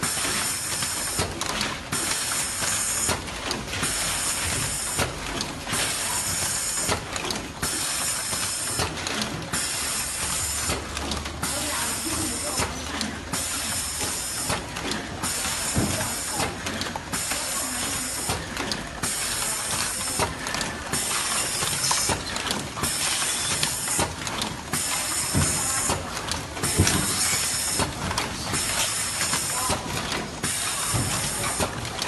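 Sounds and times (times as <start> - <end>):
mechanical clatter: 0.0 - 32.0
machine hissing: 26.6 - 27.8.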